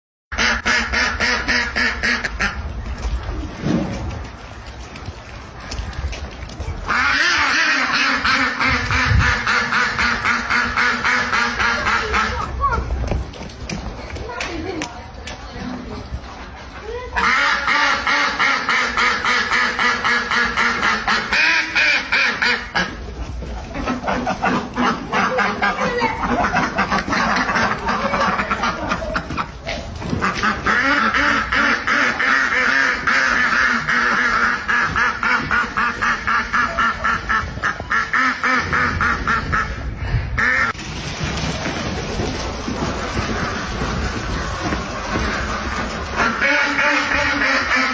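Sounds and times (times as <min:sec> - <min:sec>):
ducks quacking: 0:00.3 - 0:03.0, 0:06.8 - 0:12.8, 0:17.1 - 0:40.8, 0:42.3 - 0:47.9.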